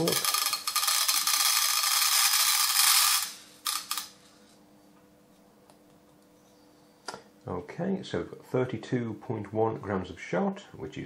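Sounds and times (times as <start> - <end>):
pellets rattling into metal tin: 0.0 - 4.1.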